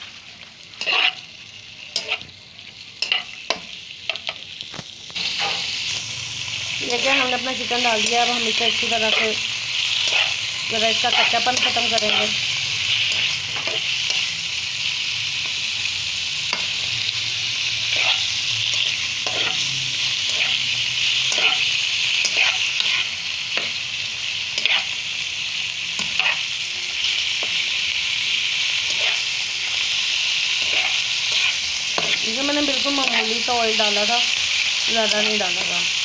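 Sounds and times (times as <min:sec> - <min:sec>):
chicken sizzling in a pan: 0:00.0 - 0:36.0
spatula scraping a pan: 0:00.8 - 0:01.3, 0:01.9 - 0:02.3, 0:05.2 - 0:05.8, 0:08.0 - 0:14.3, 0:17.8 - 0:23.7, 0:24.5 - 0:25.0, 0:26.0 - 0:26.5, 0:28.8 - 0:29.3.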